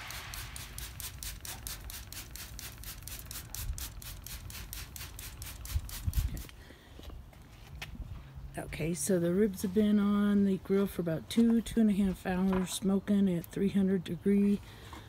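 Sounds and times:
spray bottle spritzing: 0.0s - 6.5s.

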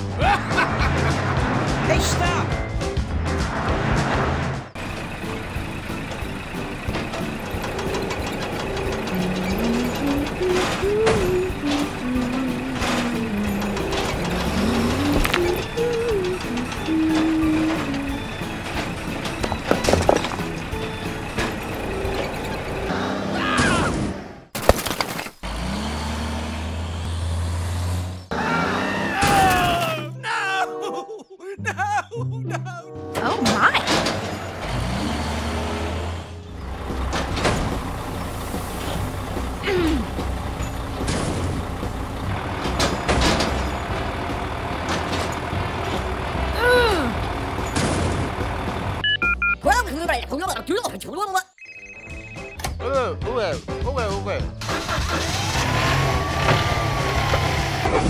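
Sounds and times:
engine sound effect: 0.2s - 24.5s, 54.6s - 58.0s
clunks: 4.7s - 23.0s, 33.1s - 49.0s
cartoon clattering: 6.2s - 22.6s
rising and falling squeal: 7.4s - 23.5s, 55.2s - 58.0s
gliding cries: 8.0s - 18.7s.

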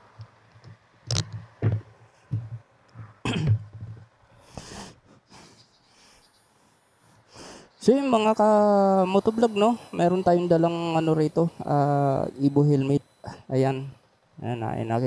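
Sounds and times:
man coughing: 3.2s - 3.7s
faint breaths: 4.2s - 7.8s.

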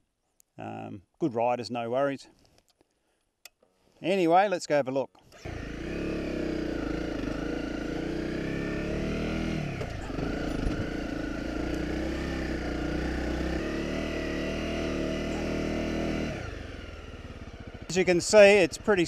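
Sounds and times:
motorcycle engine revving: 5.3s - 19.0s.

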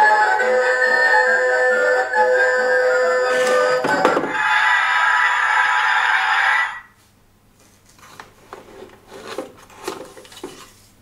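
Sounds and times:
light scraping and rubbing on plastic: 7.6s - 11.0s.

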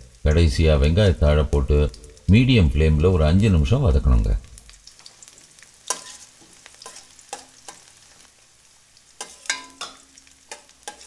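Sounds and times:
light sizzle: 0.0s - 11.0s
metal spatula scraping a wok: 5.9s - 8.3s, 9.2s - 11.0s.

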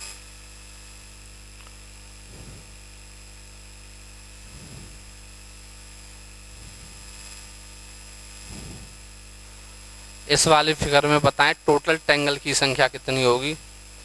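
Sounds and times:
electrical mains hum: 0.0s - 14.0s
microphone line hiss: 0.0s - 14.0s
faint soft sounds: 2.3s - 2.8s, 4.5s - 5.2s, 6.4s - 7.4s.

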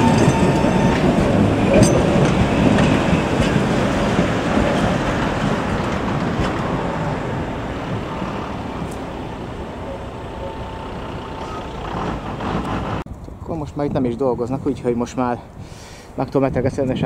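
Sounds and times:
tram running on track: 0.0s - 13.1s.

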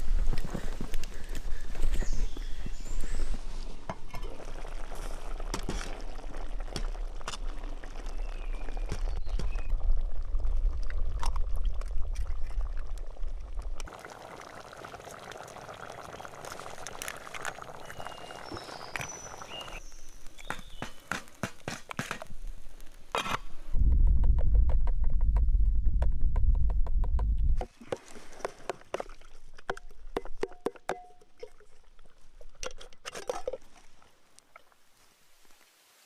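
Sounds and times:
stew simmering and hissing: 0.0s - 23.8s
bird chirps: 17.8s - 21.1s
strong low rumble: 23.7s - 27.6s.

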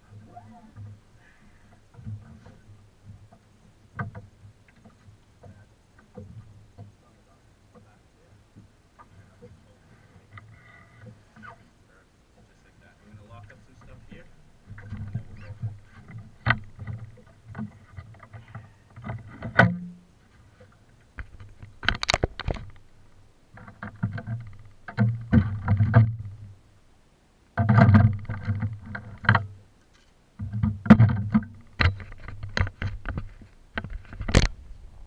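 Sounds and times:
microphone handling knocks and rustles: 13.4s - 26.6s, 27.6s - 29.5s, 30.4s - 35.0s.

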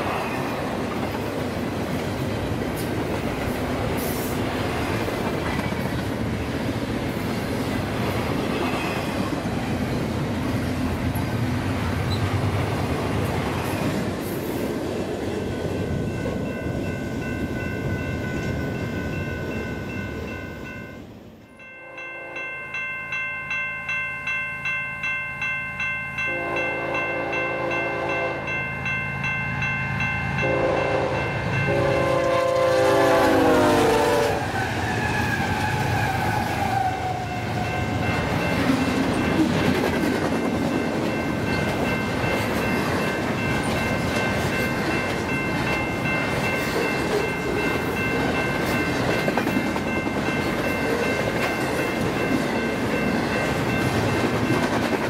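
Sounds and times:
train wheels and cars rushing by: 0.0s - 55.0s
railroad crossing bell ringing: 13.5s - 34.4s, 37.0s - 55.0s
locomotive air horn: 26.3s - 28.5s, 30.4s - 36.8s.

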